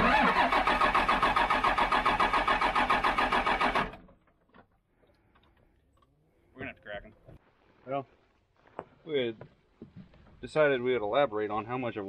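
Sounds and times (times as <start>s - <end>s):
diesel engine starter cranking: 0.0s - 4.3s.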